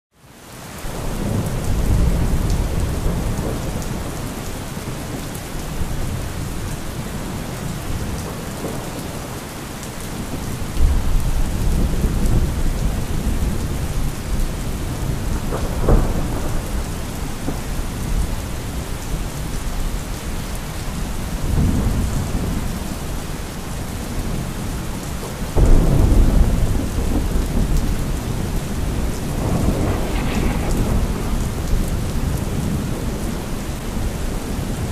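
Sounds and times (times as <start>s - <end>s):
heavy rain: 0.1s - 34.9s
sharp thunder crack: 25.6s - 34.0s
thunder rolling: 25.6s - 34.9s.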